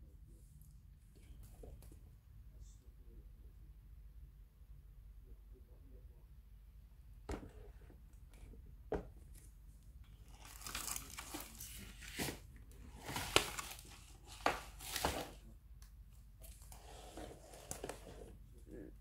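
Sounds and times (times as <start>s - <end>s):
plastic sheet crinkling: 10.2s - 12.4s.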